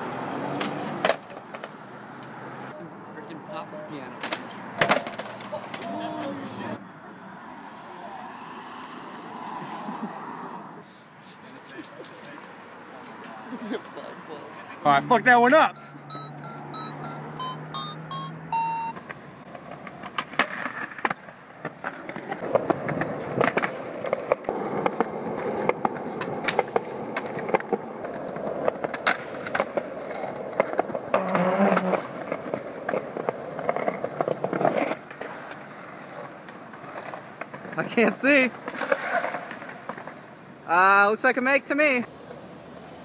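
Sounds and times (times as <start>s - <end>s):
skateboard wheels rolling on concrete: 0.0s - 43.0s
skateboard clacking on ledges: 0.6s - 1.8s, 4.2s - 6.4s, 19.0s - 37.9s, 38.5s - 40.2s
toy keyboard beeping notes: 15.7s - 19.0s.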